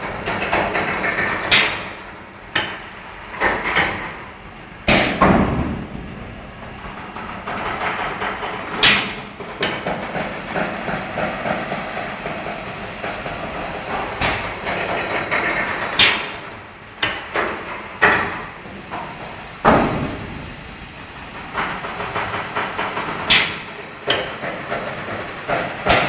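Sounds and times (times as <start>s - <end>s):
steady background noise: 0.0s - 26.0s.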